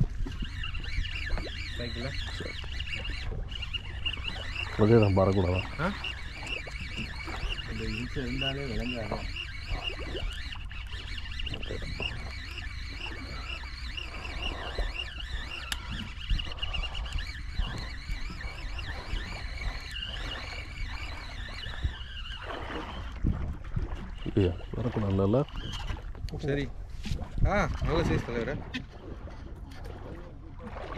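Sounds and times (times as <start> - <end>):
fishing reel gears whirring: 0.0 - 30.9
low rumble of boat and wind: 0.0 - 30.9.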